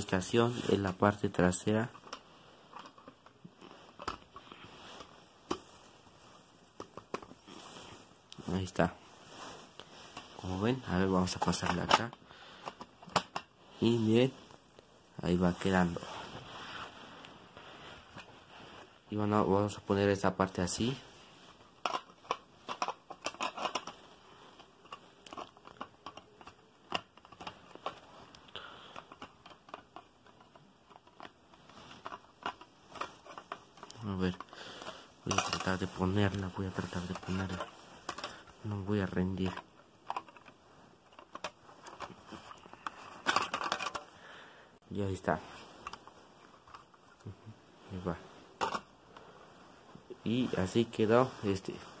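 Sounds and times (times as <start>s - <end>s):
faint rustling from handling: 0.0s - 52.0s
plastic toy pieces clicking together: 21.8s - 24.0s.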